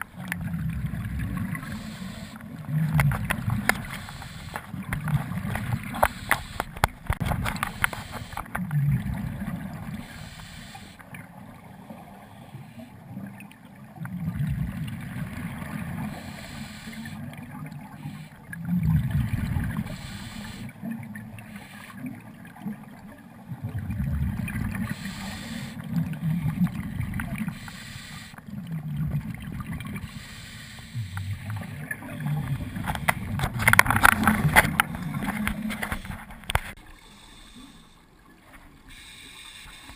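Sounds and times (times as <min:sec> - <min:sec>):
underwater regulator bubbles: 0:00.0 - 0:37.8
crackling clicks: 0:01.3 - 0:08.8, 0:32.4 - 0:36.8.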